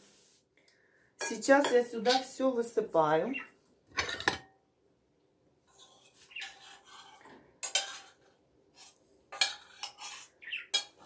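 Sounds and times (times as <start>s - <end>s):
metal spoon scraping frying pan: 1.2s - 2.4s, 3.9s - 4.5s, 5.7s - 11.0s.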